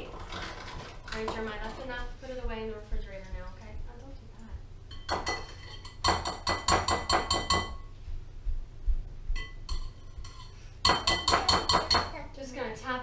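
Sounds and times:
metal utensil tapping glass bowl: 4.9s - 7.9s, 9.4s - 12.2s.

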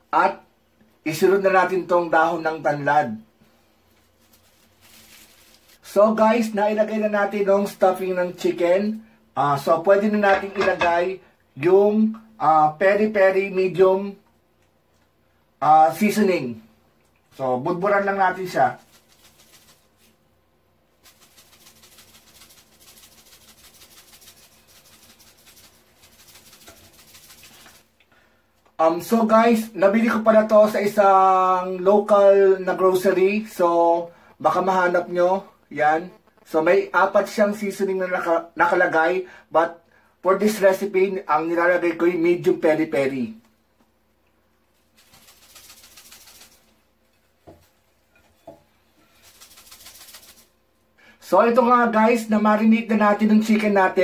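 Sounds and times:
seasoning shaker rattling: 3.9s - 6.0s, 10.2s - 11.1s, 17.8s - 20.2s, 20.9s - 28.0s, 44.6s - 50.8s.

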